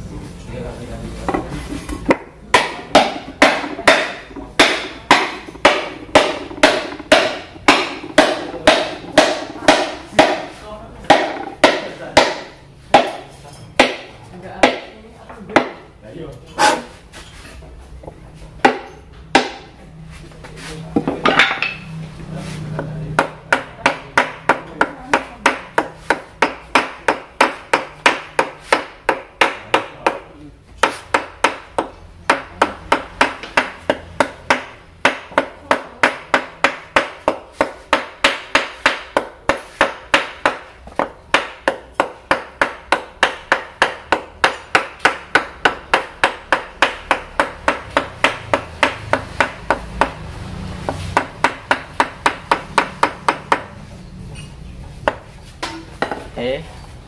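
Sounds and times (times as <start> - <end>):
mallet knocking on metal: 2.0 - 14.9, 18.6 - 19.8.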